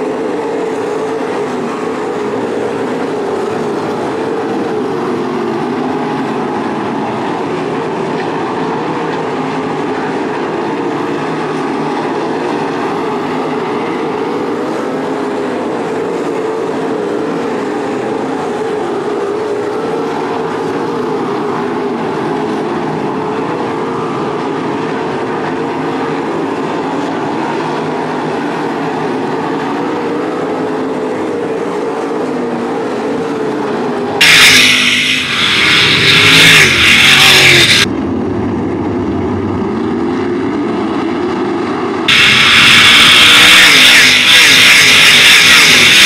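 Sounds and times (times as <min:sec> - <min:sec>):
racing car engines droning: 0:00.0 - 0:46.0.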